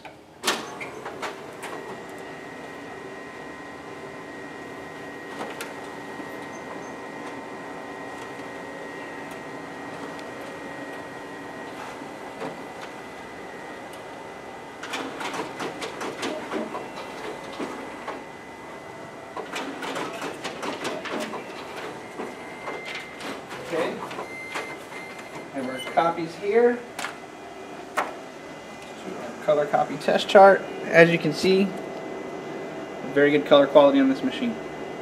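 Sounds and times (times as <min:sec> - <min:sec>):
copier humming with high whine: 0:00.0 - 0:35.0
copier clicking and rattling: 0:00.4 - 0:32.0.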